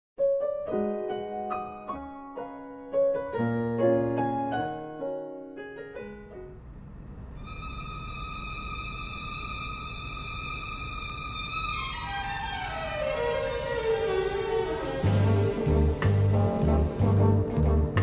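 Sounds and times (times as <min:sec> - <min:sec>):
steady hiss: 0:05.3 - 0:13.8.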